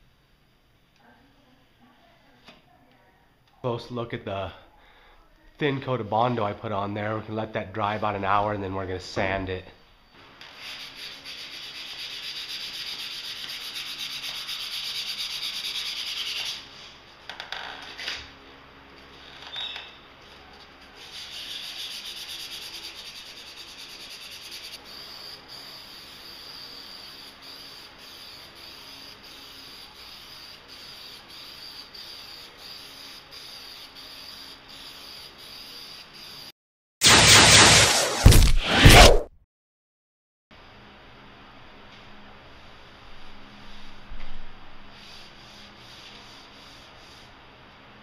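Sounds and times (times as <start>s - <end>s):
sanding sponge rubbing putty: 10.5s - 16.6s, 21.0s - 24.8s, 44.9s - 47.4s
aerosol spray can hissing: 23.8s - 36.0s.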